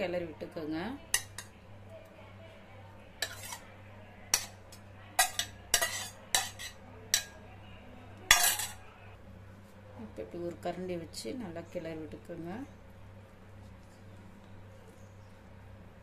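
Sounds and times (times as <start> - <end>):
spoon scraping metal plate: 3.2 - 3.6, 4.4 - 4.6, 5.2 - 7.3, 8.3 - 8.8.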